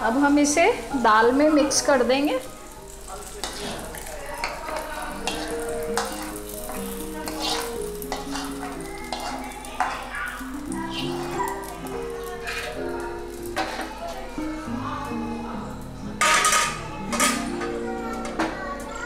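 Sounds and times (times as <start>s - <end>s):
sizzling: 0.0s - 19.0s
soft instrumental music: 0.0s - 19.0s
ladle scraping and clinking on pots: 3.2s - 12.8s, 13.5s - 13.9s, 16.2s - 17.7s.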